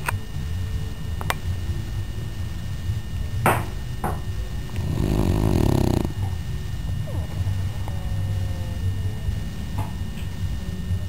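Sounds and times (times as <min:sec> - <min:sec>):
dog snoring: 0:04.6 - 0:06.4.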